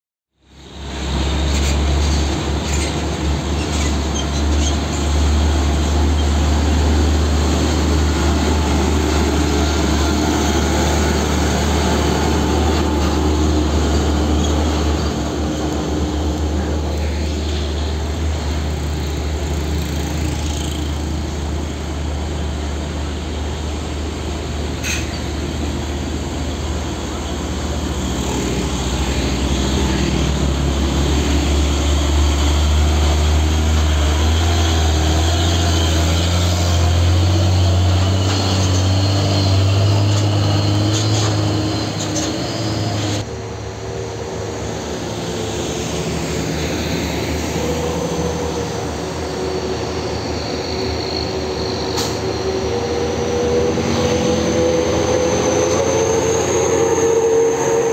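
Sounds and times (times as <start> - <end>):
truck diesel engines: 0.4 - 57.9.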